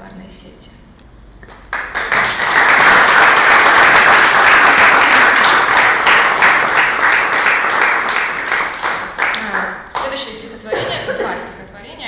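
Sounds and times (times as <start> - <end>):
audience applauding: 1.4 - 10.1.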